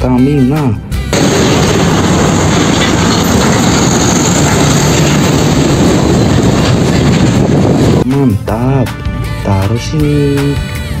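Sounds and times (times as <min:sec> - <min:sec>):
truck driving by: 0:01.0 - 0:08.0.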